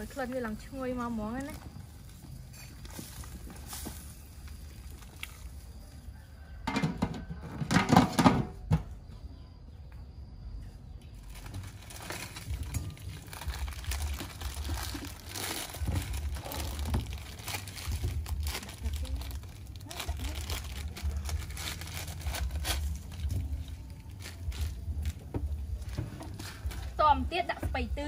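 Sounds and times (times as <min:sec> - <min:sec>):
plastic packets crinkling and tearing: 0:01.3 - 0:05.8, 0:11.2 - 0:27.0.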